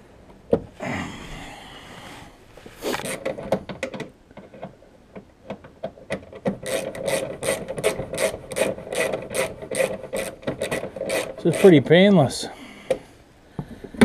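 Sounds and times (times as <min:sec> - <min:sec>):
hand ratchet wrench strokes: 0:06.4 - 0:11.9.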